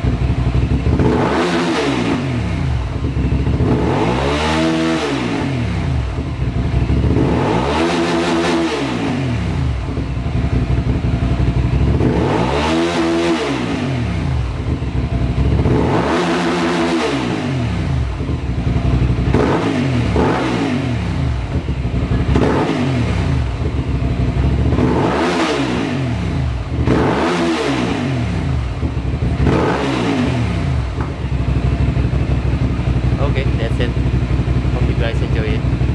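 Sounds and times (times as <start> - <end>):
motorcycle engine revving: 0.0 - 35.9.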